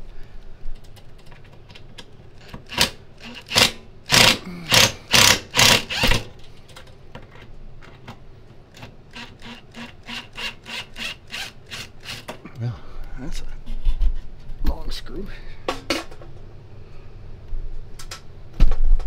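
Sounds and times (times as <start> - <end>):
cordless drill backing out screw: 2.5 - 6.2.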